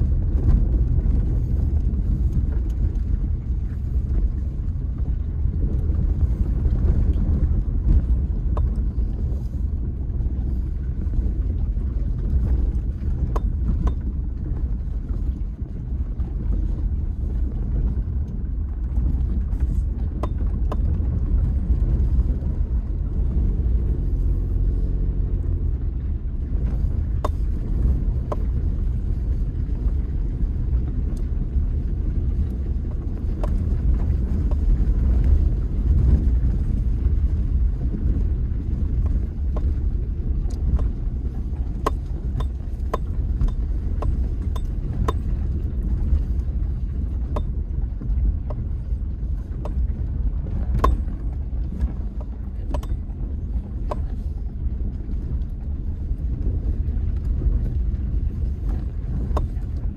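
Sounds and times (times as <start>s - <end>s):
vehicle rumbling on dirt road: 0.0s - 59.9s
sharp clicks and knocks: 40.5s - 46.4s, 47.2s - 48.6s, 49.5s - 54.3s.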